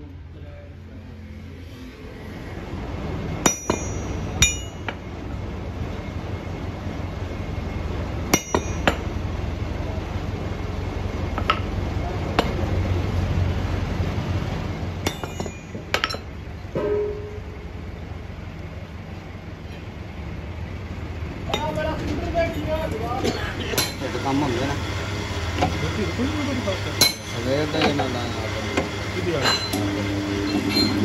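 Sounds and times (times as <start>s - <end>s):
hammer striking metal: 3.4s - 5.0s, 8.3s - 9.1s, 15.0s - 17.6s, 23.8s - 24.1s, 26.9s - 28.1s, 28.8s - 31.0s
low hum: 12.9s - 21.5s.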